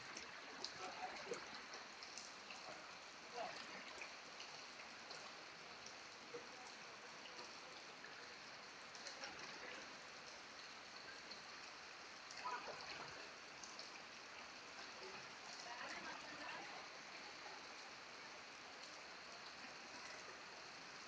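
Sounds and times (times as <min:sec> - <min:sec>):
heavy rain: 0:06.4 - 0:21.0.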